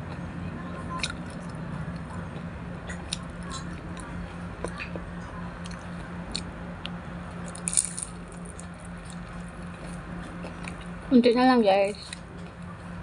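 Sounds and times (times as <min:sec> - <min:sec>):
steady low hum: 0:00.0 - 0:13.0
person chewing with mouth clicks: 0:01.0 - 0:05.0, 0:05.6 - 0:10.9
crisp crunch of fried food: 0:07.4 - 0:10.9.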